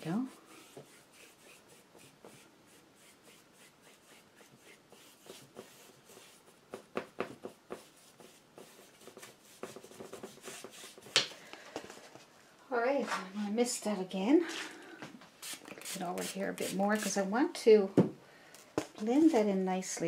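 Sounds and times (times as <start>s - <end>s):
paintbrush scratching on canvas: 0.0s - 11.1s, 15.4s - 17.2s.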